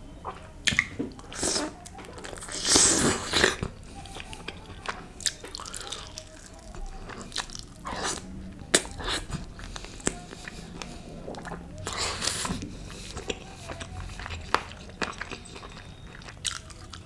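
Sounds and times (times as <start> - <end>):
chewing and biting food: 0.2 - 17.0
wet mouth clicks and smacks: 0.3 - 1.6, 7.3 - 13.4.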